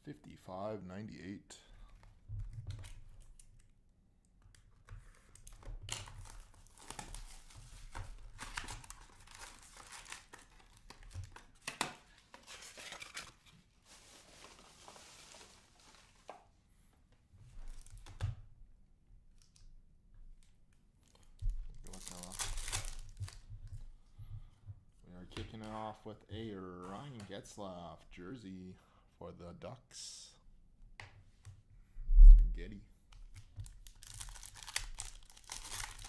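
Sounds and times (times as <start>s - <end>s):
plastic wrap tearing and crinkling: 5.4s - 15.8s, 21.1s - 23.4s, 33.6s - 36.0s
foil packs rustling: 33.9s - 36.0s.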